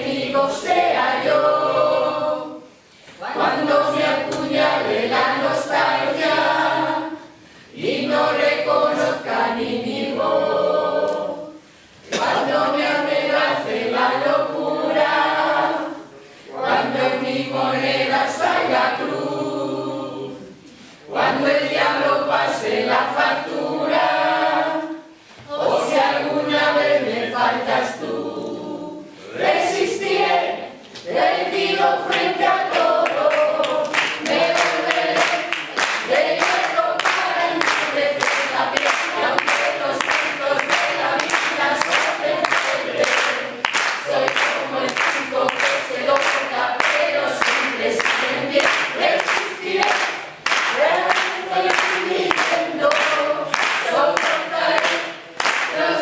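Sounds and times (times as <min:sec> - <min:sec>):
group singing unaccompanied: 0:00.0 - 0:56.0
hand clapping: 0:04.0 - 0:04.7, 0:32.1 - 0:56.0.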